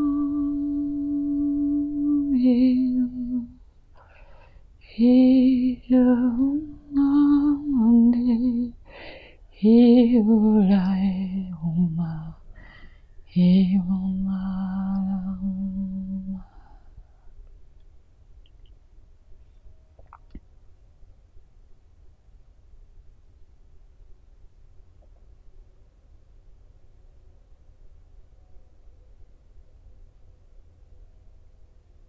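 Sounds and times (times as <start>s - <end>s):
person toning wordless chant: 0.0s - 3.6s.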